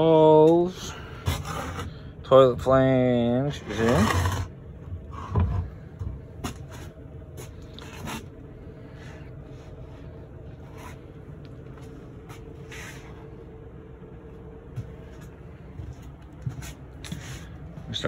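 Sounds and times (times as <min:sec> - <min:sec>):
steady low hum: 0:00.0 - 0:18.0
plywood board scraping on floor: 0:03.6 - 0:04.5.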